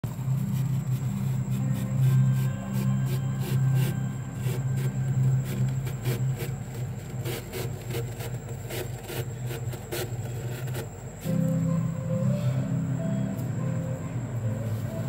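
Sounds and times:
low steady hum: 0.0 - 15.0
fingers scraping freezer frost: 0.1 - 11.4.

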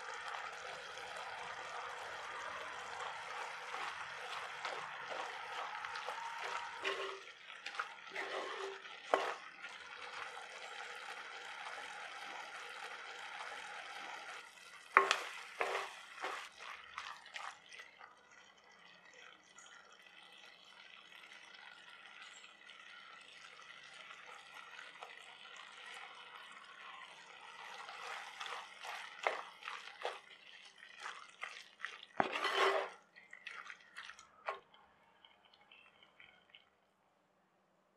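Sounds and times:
food sizzling in a pot: 0.0 - 17.7, 20.2 - 33.3
spatula scraping a pot: 3.3 - 10.3, 15.0 - 16.6, 28.0 - 30.2, 32.1 - 33.0.

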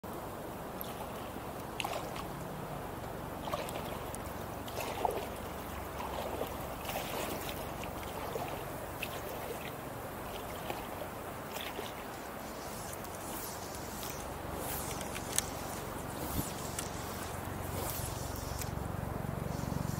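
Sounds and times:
shallow water lapping and sloshing: 0.1 - 19.9
small splashes and ticks: 0.1 - 19.9.

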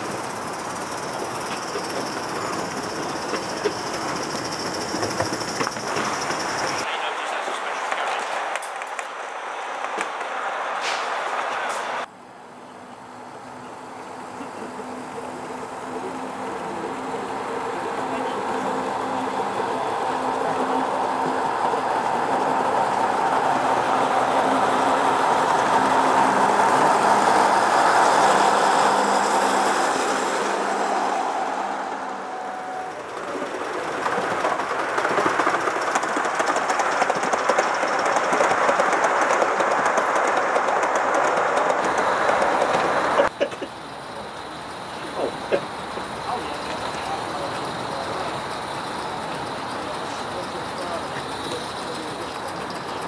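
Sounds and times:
wheels clicking over rail joints: 0.0 - 6.9, 32.6 - 53.0
model train humming: 0.0 - 8.6, 12.0 - 53.0.

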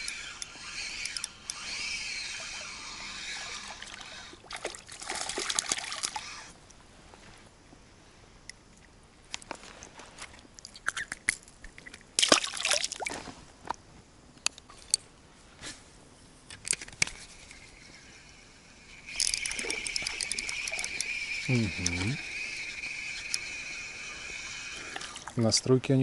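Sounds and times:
water splashing and trickling: 2.4 - 6.4, 10.2 - 13.3, 17.6 - 25.6.

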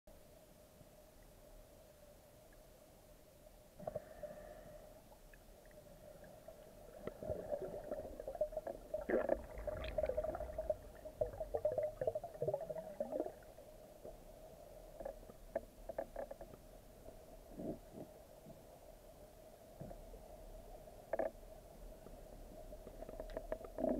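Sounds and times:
steady hum: 0.2 - 15.5
underwater gurgling and crackling: 0.8 - 23.9.

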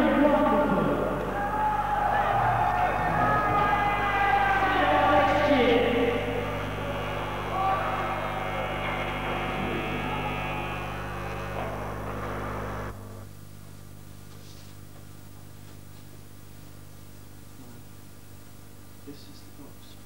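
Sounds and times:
muffled concert hall sound: 0.0 - 12.9
faint tape hiss: 0.0 - 14.0
mains hum: 0.0 - 20.0.

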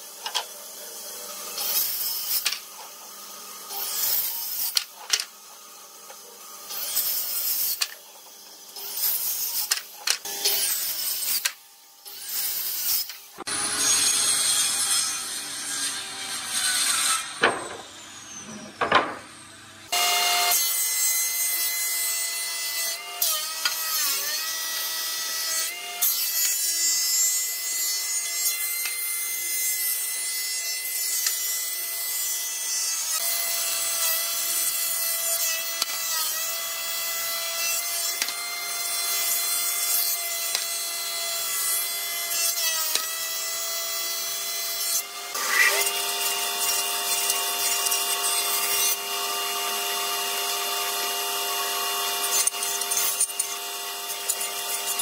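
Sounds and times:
circular saw cutting board: 0.0 - 29.9, 44.7 - 55.0.

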